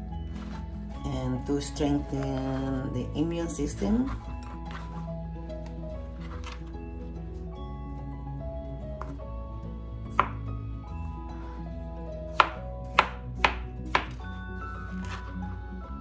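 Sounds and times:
knife chopping on cutting board: 10.1s - 10.4s, 12.3s - 14.2s.

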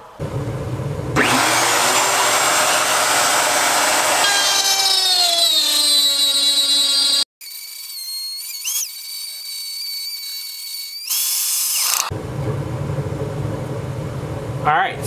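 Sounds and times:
router bit cutting wood: 1.2s - 12.1s
router motor whining: 1.2s - 12.1s.

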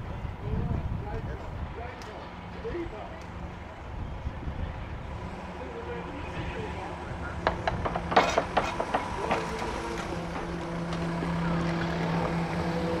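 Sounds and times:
sharp clicks and knocks: 7.4s - 11.9s.

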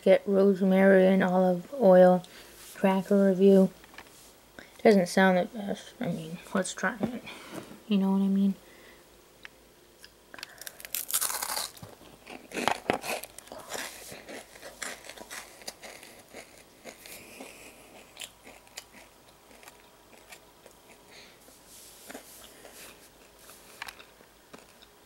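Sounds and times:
crackers crunching being chewed: 10.0s - 21.2s, 22.0s - 25.0s.

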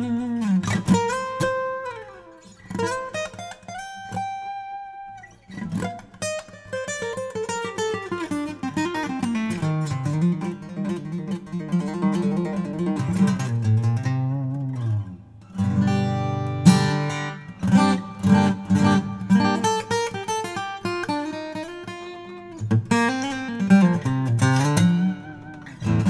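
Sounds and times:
acoustic guitar plucked notes: 0.0s - 26.0s.

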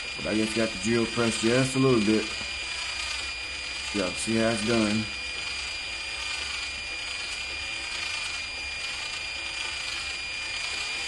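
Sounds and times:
cordless drill motor whining: 0.0s - 11.0s.

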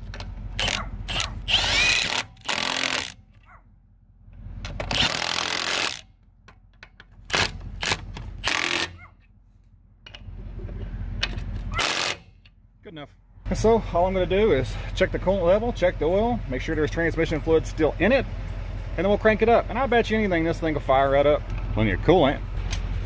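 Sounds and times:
impact wrench bursts: 0.6s - 3.3s, 4.7s - 6.1s, 7.3s - 9.0s, 11.7s - 12.4s.

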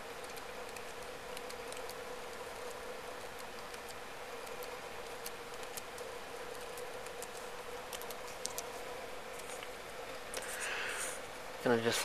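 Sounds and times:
laptop keys clicking: 0.0s - 8.7s
faint hum: 0.0s - 12.0s.

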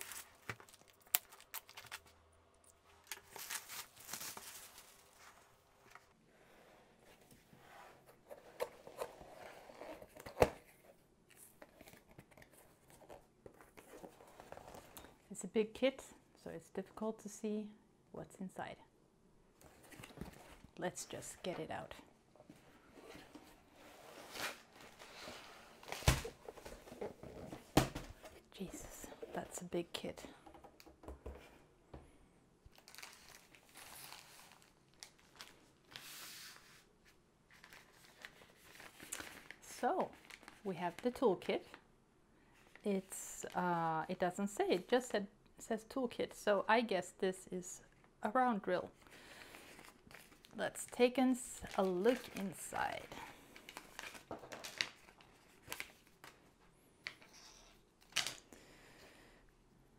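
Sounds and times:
plastic packaging crinkling: 0.0s - 2.2s, 3.0s - 5.4s, 32.7s - 35.7s.

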